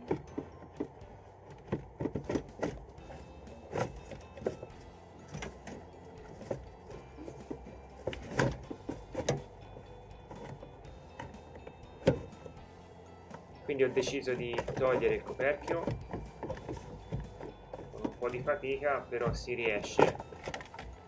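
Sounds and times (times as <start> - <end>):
plastic parts clicking and rattling: 14.0 - 21.0.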